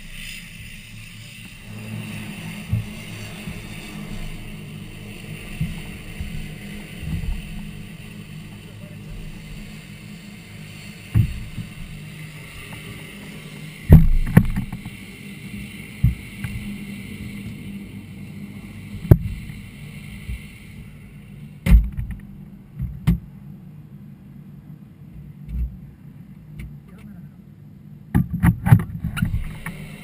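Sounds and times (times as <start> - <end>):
steady hiss: 0.0 - 30.0
knocks and thumps of cockpit canopy: 11.2 - 11.7, 21.6 - 23.3, 28.1 - 29.4.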